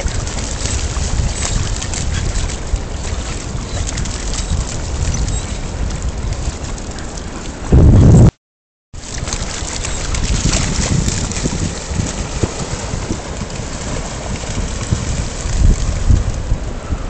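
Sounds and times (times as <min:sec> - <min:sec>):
dogs splashing through water: 0:00.0 - 0:07.7, 0:09.0 - 0:16.5
wind buffeting microphone: 0:00.0 - 0:08.3, 0:09.1 - 0:17.0
shallow surf washing: 0:09.0 - 0:17.0.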